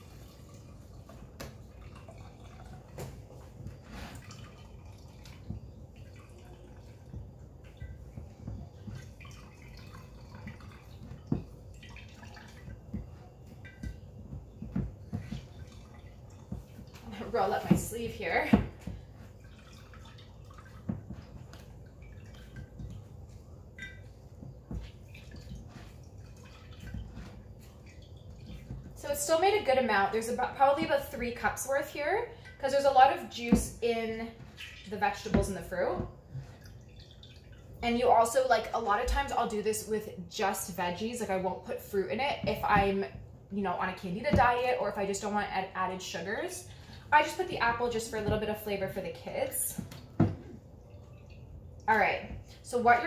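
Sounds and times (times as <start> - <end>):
liquid splashes: 0.0 - 39.4
juice dripping and trickling: 0.0 - 53.0.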